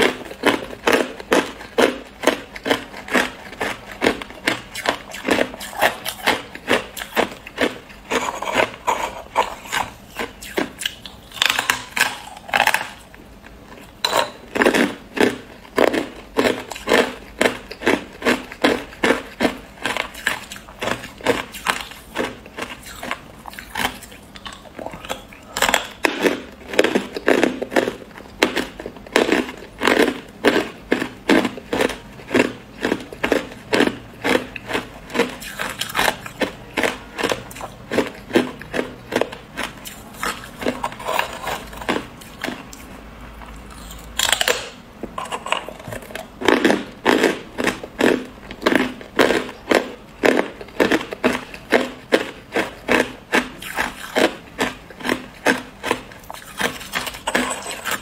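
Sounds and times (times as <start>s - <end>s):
ice crunched between teeth: 14.6s - 42.8s, 43.7s - 58.0s.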